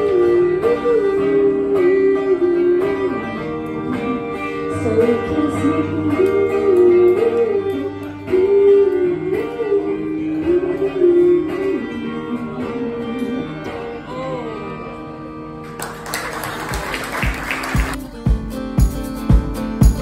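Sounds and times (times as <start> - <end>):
woman singing into a microphone: 0.0 - 15.1
acoustic guitar strumming: 0.0 - 20.0.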